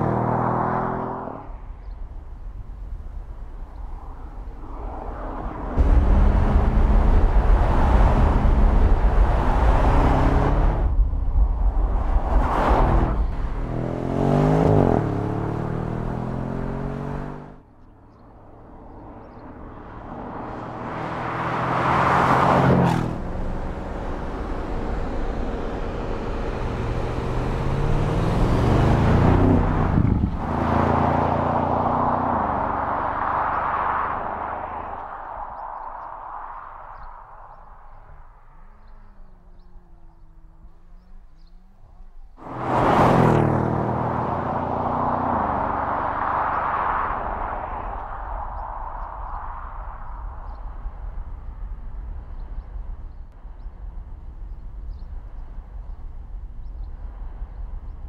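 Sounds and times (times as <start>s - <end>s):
car engine accelerating past: 0.0s - 1.4s, 5.0s - 11.0s, 12.3s - 17.6s, 19.5s - 35.9s, 42.2s - 49.4s.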